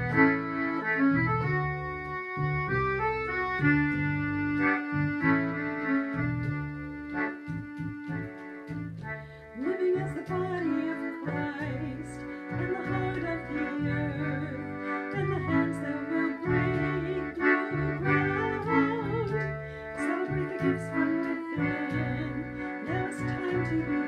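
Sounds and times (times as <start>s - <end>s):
accordion playing: 0.0s - 24.0s
woman singing: 9.6s - 24.0s.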